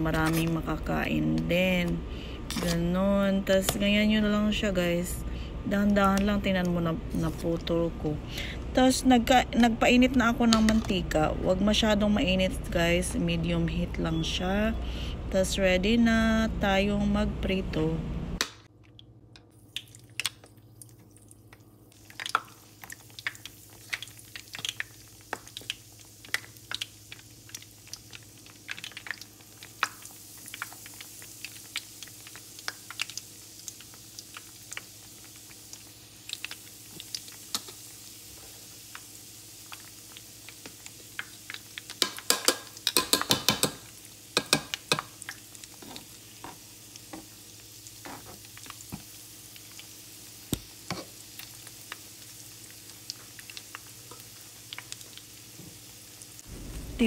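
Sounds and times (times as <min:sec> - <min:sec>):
frying in hot oil sizzle: 0:19.4 - 0:57.0.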